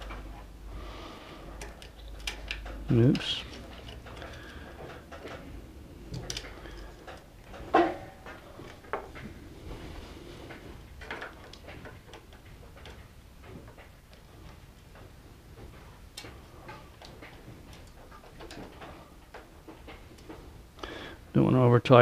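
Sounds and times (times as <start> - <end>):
plastic and metal parts clicking: 1.6 - 5.4, 6.1 - 9.2.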